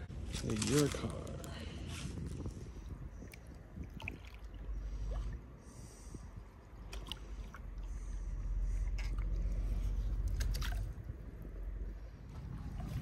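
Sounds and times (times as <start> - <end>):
wind buffeting microphone: 0.0 - 13.0
paddle splashing and dripping: 3.2 - 5.4, 6.8 - 9.6.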